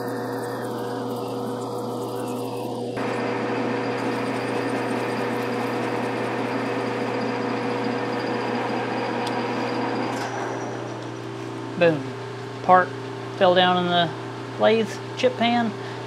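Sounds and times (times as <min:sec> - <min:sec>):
lathe humming: 0:00.0 - 0:11.8
lathe tool cutting hiss: 0:03.0 - 0:10.8.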